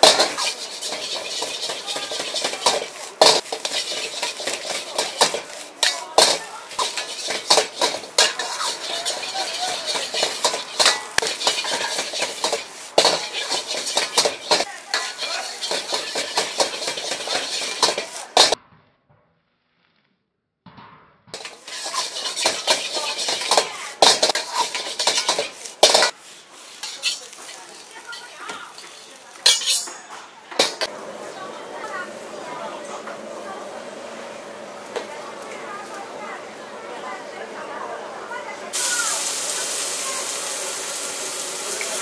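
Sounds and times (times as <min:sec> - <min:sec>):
frying sizzle: 0:00.0 - 0:18.6, 0:21.4 - 0:42.0
metal ladle scraping a wok: 0:00.0 - 0:18.6, 0:21.4 - 0:30.9.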